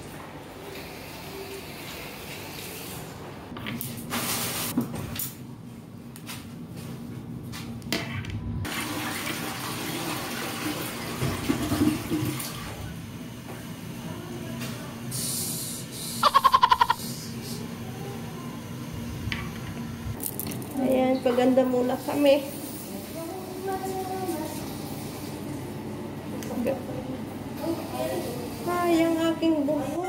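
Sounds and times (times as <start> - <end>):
toilets flushing: 8.6 - 13.9, 21.3 - 25.8
water running: 8.7 - 12.8.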